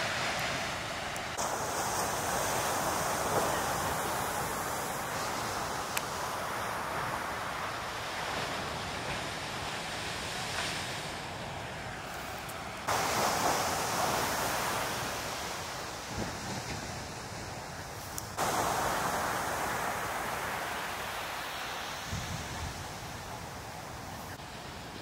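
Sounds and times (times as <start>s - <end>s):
big surf breaking: 0.0s - 25.0s
wind buffeting microphone: 12.8s - 24.4s.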